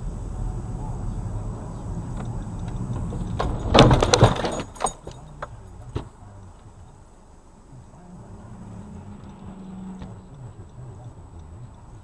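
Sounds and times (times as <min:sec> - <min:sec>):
car road rumble: 0:00.0 - 0:12.0
vehicle collision crunching: 0:02.1 - 0:06.8.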